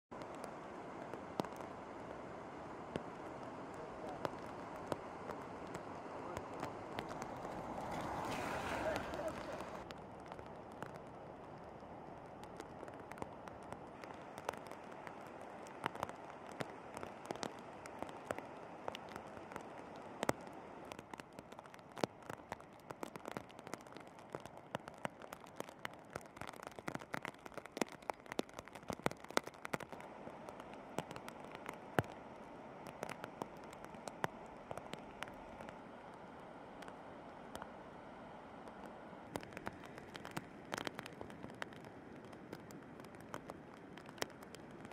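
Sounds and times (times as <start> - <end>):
raindrops tapping microphone: 0.1 - 44.9
river rushing: 0.2 - 9.9.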